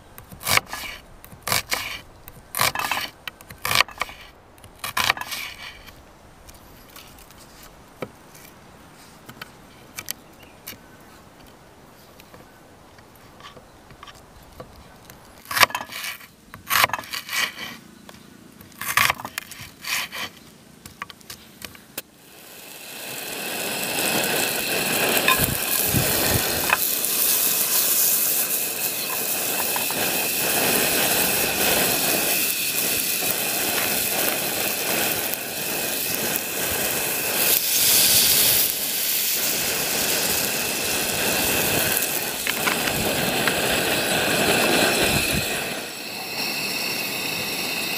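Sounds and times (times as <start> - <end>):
onion sizzling in a pan: 0.4 - 5.9, 22.1 - 47.9.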